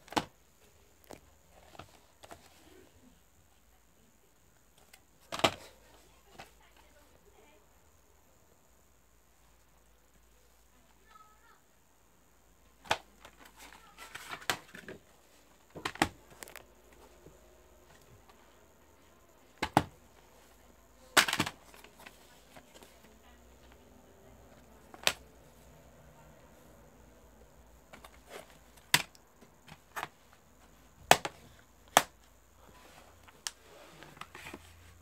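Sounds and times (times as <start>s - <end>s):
plastic cases clicking and snapping: 0.0s - 0.3s, 4.8s - 5.7s, 12.8s - 15.0s, 15.7s - 17.0s, 19.6s - 20.0s, 21.1s - 22.8s, 24.8s - 25.3s, 27.9s - 30.2s, 31.0s - 32.3s.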